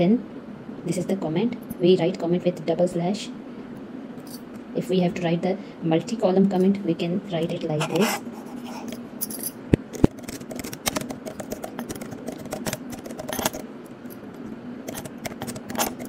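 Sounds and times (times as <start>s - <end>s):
faint steady hum: 0.0s - 16.0s
keyboard keys clicking: 9.9s - 13.6s, 14.9s - 16.0s.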